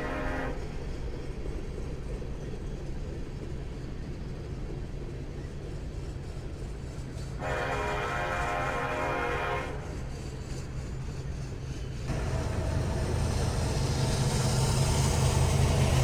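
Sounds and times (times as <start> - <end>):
locomotive air horn: 0.0 - 0.6, 7.4 - 9.9
train rumbling: 0.0 - 16.0.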